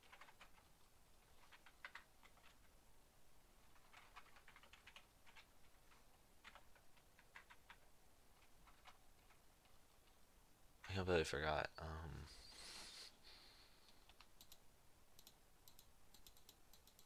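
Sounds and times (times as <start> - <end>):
keyboard typing: 0.0 - 2.8, 3.6 - 10.2, 13.9 - 17.0.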